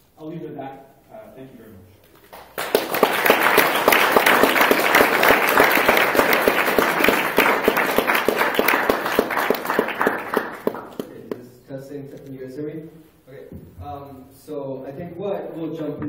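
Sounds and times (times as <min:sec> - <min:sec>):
audience applauding: 0:02.2 - 0:11.4.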